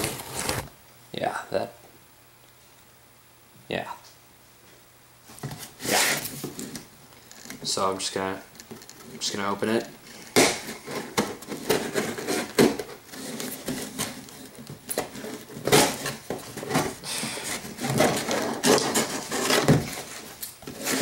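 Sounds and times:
knife cutting packing tape: 5.8 - 6.8, 10.1 - 21.0
sharp scrapes and knocks: 10.1 - 21.0.

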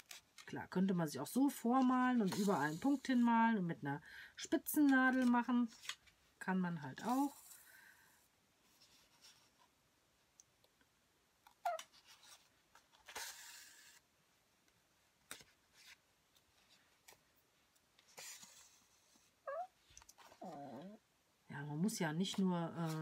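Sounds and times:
pet whining cries: 19.4 - 21.0.

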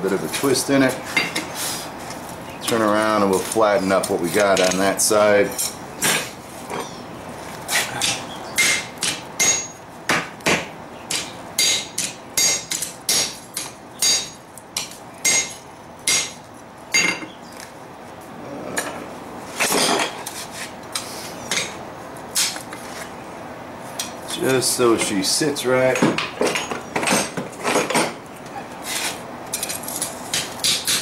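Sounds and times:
hammer striking steel on anvil: 8.6 - 16.4.

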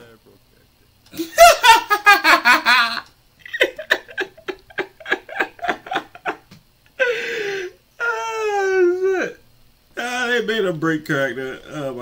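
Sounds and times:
man laughing hard: 1.1 - 7.7.

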